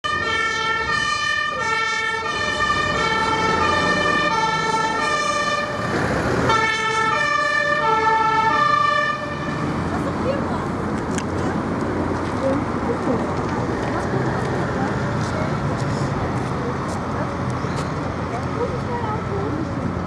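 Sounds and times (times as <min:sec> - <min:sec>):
two-tone fire engine siren: 0:00.0 - 0:09.9.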